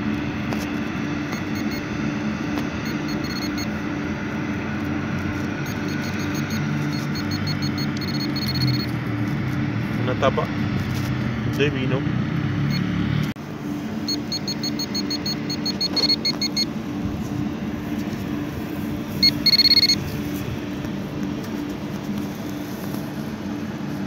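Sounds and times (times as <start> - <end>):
low steady hum: 0.0 - 11.4, 13.4 - 24.0
metal detector beeping: 1.2 - 2.0, 2.7 - 3.8, 5.4 - 9.0, 12.7 - 12.9, 14.0 - 16.8, 19.2 - 20.1.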